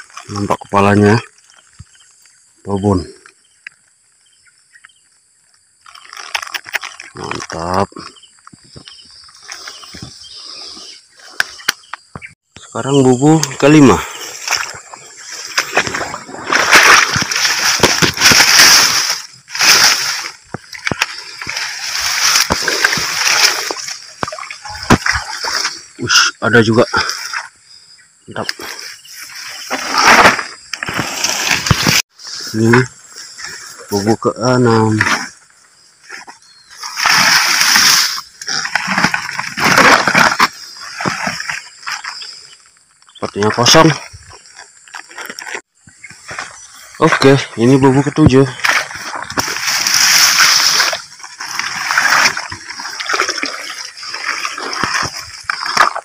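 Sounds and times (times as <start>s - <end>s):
water splashing and sloshing: 14.1s - 26.0s, 36.0s - 42.3s, 48.6s - 56.0s
wet grass swishing: 14.2s - 25.9s, 36.8s - 40.3s, 48.6s - 56.0s.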